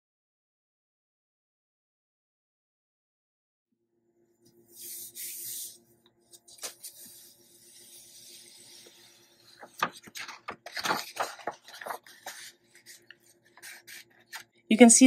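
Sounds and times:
hands rubbing paper: 0:04.7 - 0:05.8, 0:06.4 - 0:14.4
paper crackling and rustling: 0:06.4 - 0:14.6.

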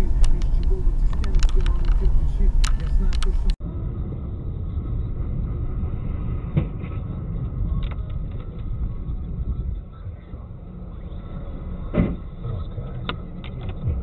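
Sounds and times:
car rumbling on road: 0:00.0 - 0:14.0
loud thump: 0:11.9 - 0:12.3.

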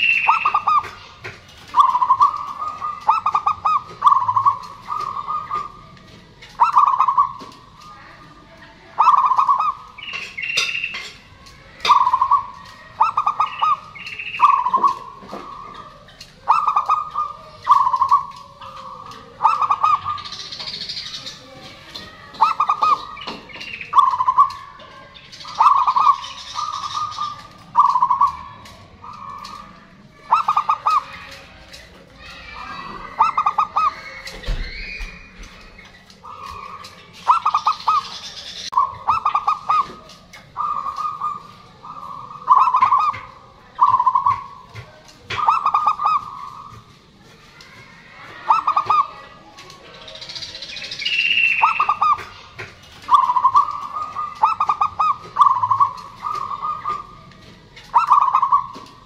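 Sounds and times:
higher bird chirps: 0:00.0 - 0:47.0, 0:47.6 - 0:59.0
dove cooing: 0:00.0 - 0:59.0.

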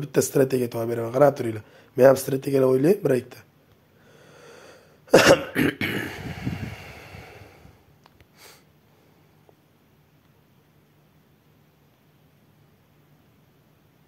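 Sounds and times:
breathy exhale: 0:04.0 - 0:05.0, 0:06.0 - 0:08.7
man coughing: 0:05.1 - 0:06.4.

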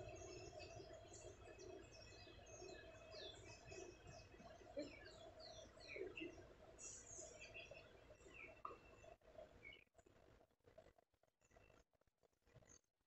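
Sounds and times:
birds chirping: 0:00.0 - 0:09.9.

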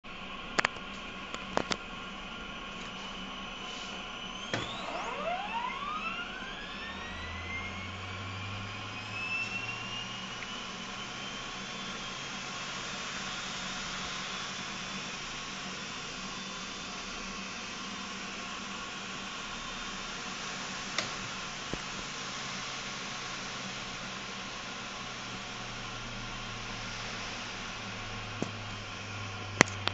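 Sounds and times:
hard drive motor whining: 0:01.4 - 0:21.8.

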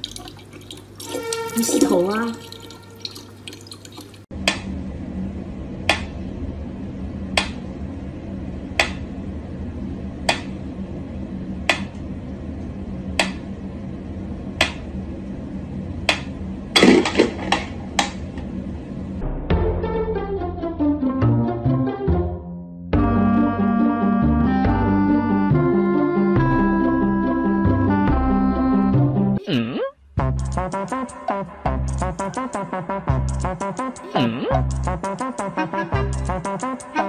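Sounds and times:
low steady hum: 0:00.0 - 0:19.3, 0:31.6 - 0:37.0.

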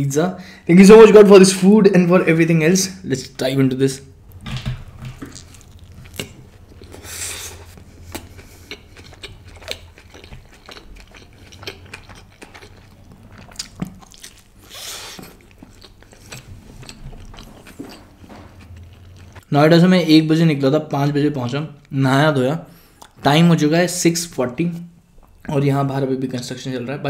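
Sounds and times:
close chewing with wet smacks: 0:05.2 - 0:19.5, 0:23.0 - 0:23.2.

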